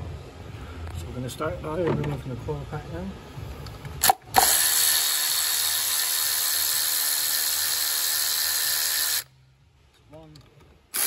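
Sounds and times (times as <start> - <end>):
electric ratchet whirring: 4.0 - 9.3.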